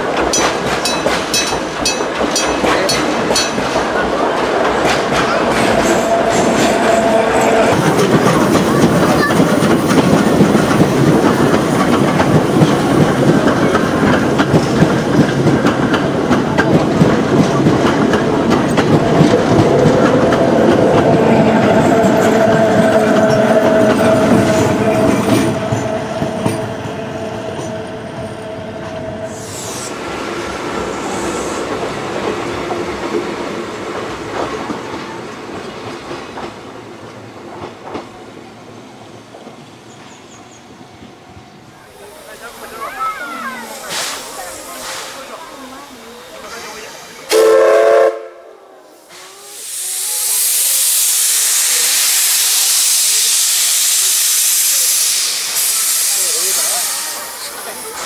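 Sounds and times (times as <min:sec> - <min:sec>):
train wheels clacking on rail joints: 0:00.0 - 0:27.8, 0:31.2 - 0:38.5.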